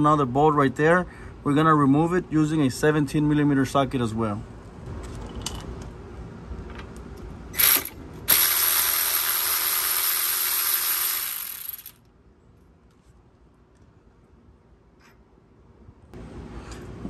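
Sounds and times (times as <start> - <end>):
cordless electric ratchet running: 7.6 - 12.0.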